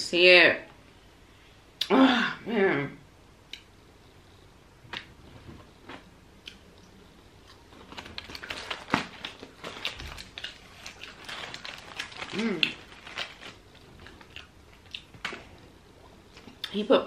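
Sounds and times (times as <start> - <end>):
aluminium foil crinkling: 7.7 - 15.6.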